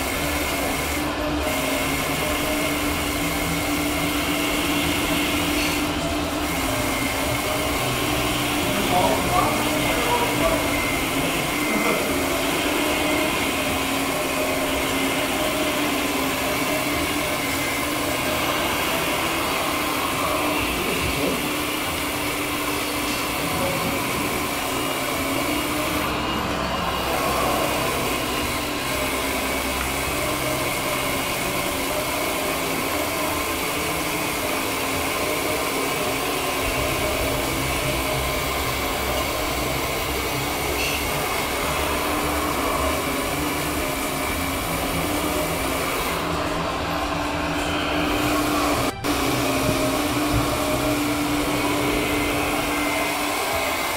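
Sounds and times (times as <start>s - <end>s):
model excavator hydraulics whining: 0.0s - 53.9s.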